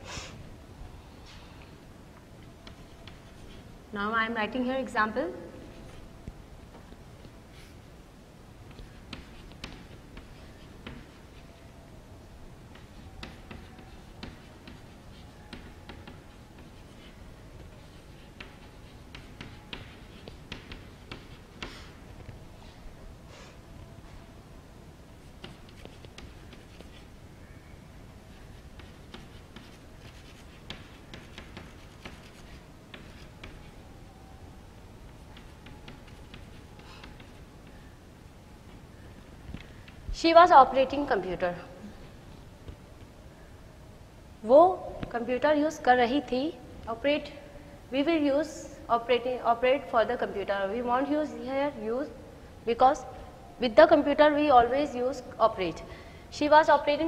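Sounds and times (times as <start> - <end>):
low background noise: 0.0 - 57.0
chalk tapping on chalkboard: 2.6 - 3.6, 8.7 - 11.5, 12.7 - 22.0, 25.3 - 27.1, 28.4 - 33.8, 35.1 - 37.9.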